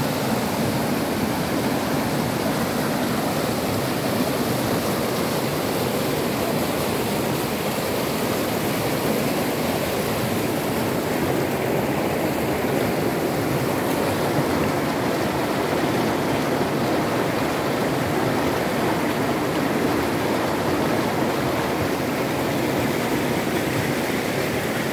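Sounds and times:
river rushing over stones: 0:00.0 - 0:24.9.

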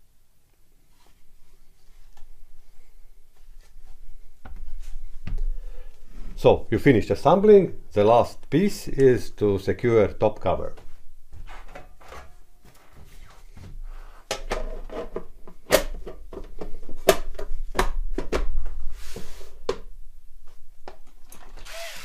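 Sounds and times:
rustling: 0:00.5 - 0:06.5.

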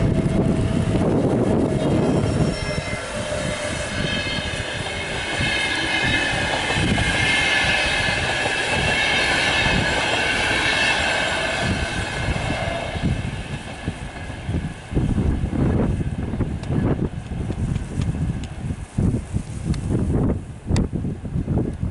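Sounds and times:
train wheels rumbling on rails: 0:00.0 - 0:21.0
high wheel squeal: 0:00.3 - 0:13.6.

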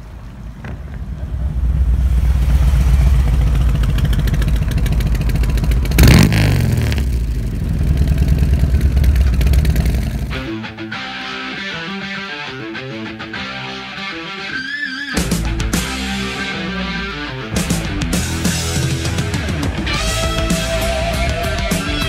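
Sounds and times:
motorcycle engine rumbling: 0:00.0 - 0:10.6, 0:15.2 - 0:22.0.

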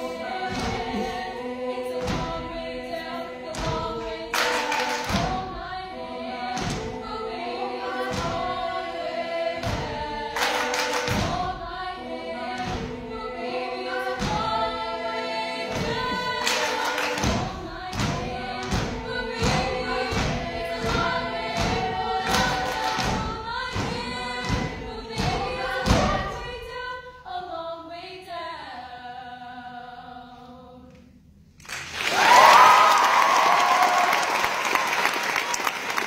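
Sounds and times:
girls' choir singing: 0:00.0 - 0:30.9
beat of claps and thumps: 0:00.4 - 0:01.2, 0:03.5 - 0:05.6, 0:06.5 - 0:07.0, 0:08.0 - 0:08.6, 0:09.6 - 0:11.6, 0:12.5 - 0:13.1, 0:15.7 - 0:26.4
audience applause: 0:31.7 - 0:36.0.

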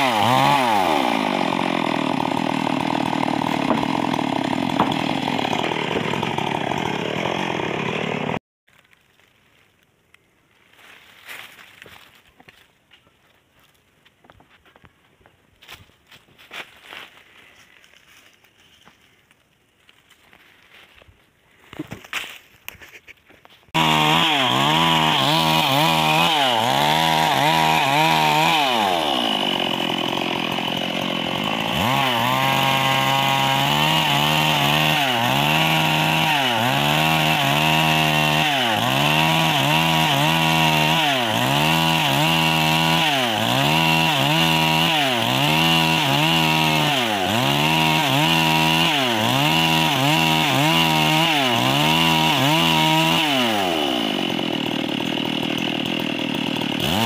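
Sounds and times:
chainsaw ripping wood: 0:00.0 - 0:09.8, 0:23.7 - 0:57.0.

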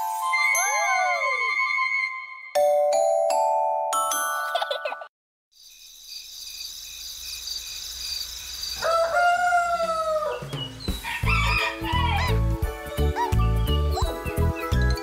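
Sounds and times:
bouncy children's music: 0:00.0 - 0:05.1, 0:10.4 - 0:15.0
rooster crowing: 0:08.8 - 0:12.4.

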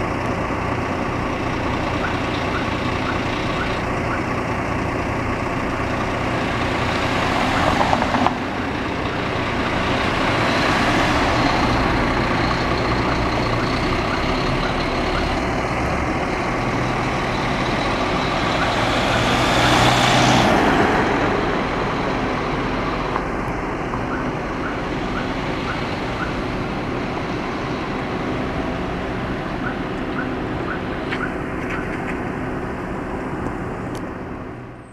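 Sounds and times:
bus diesel engine running: 0:00.0 - 0:34.9
road traffic: 0:00.0 - 0:34.9
car passing close: 0:06.3 - 0:32.6.

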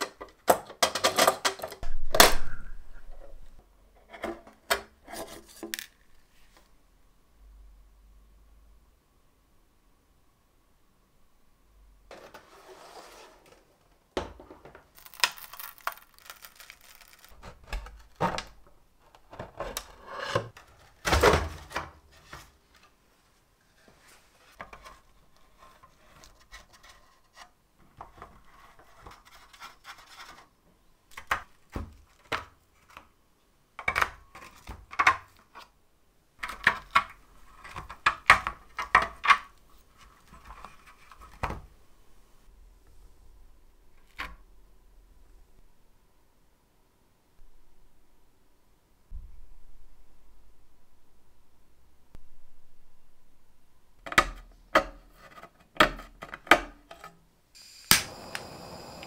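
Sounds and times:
scrapes and clicks of wooden parts: 0:04.0 - 0:06.7, 0:14.7 - 0:21.0.

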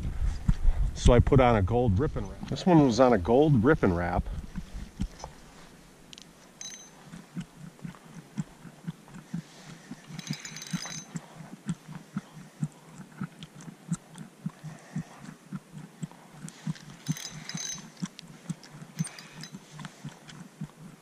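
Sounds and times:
fishing reel cranking: 0:10.1 - 0:11.2, 0:17.0 - 0:18.1, 0:19.0 - 0:19.6.

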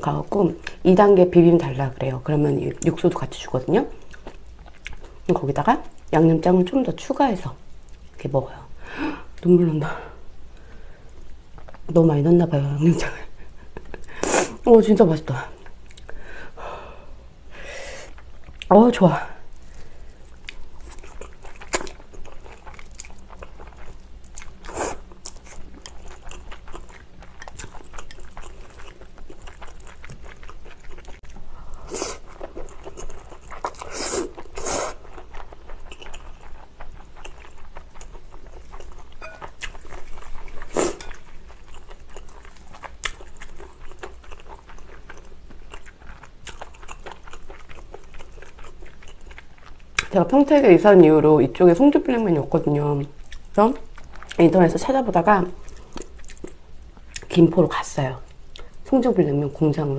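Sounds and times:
wet chewing: 0:19.6 - 0:50.6, 0:53.2 - 0:57.4.

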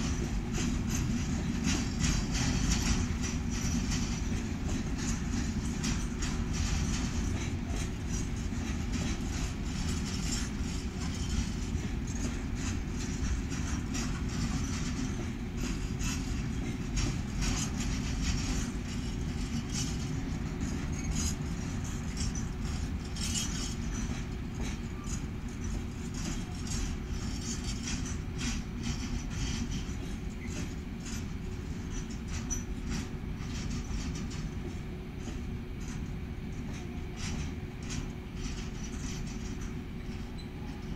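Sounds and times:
wheels clicking and squeaking: 0:00.0 - 0:34.5, 0:36.7 - 0:40.9
freight train rumbling past: 0:00.0 - 0:40.9.

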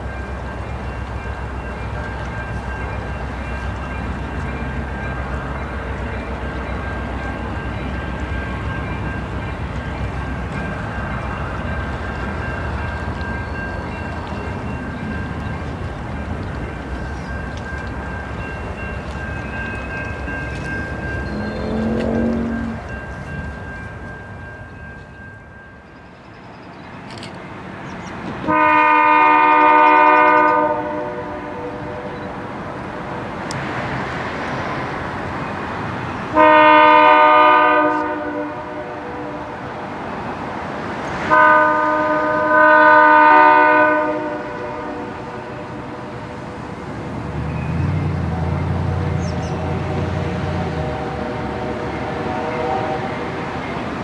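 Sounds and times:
locomotive engine rumble: 0:00.0 - 0:54.0
locomotive air horn: 0:28.5 - 0:32.2, 0:36.3 - 0:39.7, 0:41.2 - 0:46.2, 0:49.6 - 0:53.6.

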